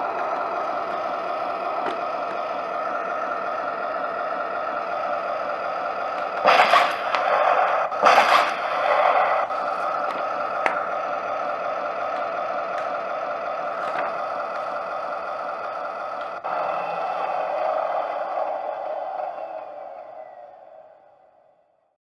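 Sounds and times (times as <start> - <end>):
loud noisy bursts: 0.0 - 21.6
model tank running hum: 0.0 - 21.7.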